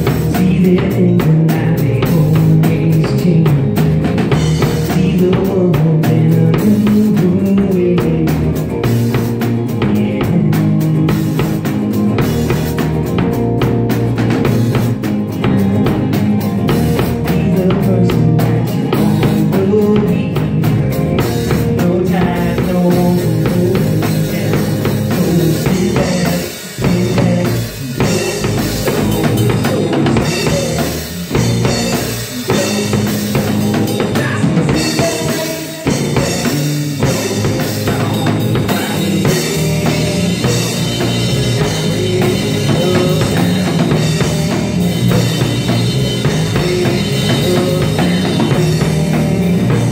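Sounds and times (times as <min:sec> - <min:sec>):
drum kit beat: 0:00.0 - 0:49.9
electric guitars: 0:00.0 - 0:49.9
rock band playing: 0:00.0 - 0:49.9.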